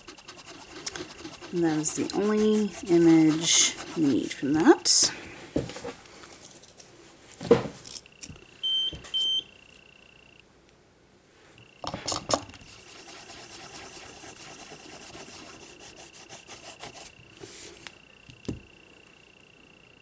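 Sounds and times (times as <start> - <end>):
thin high whine: 0.0 - 5.3, 12.6 - 20.0.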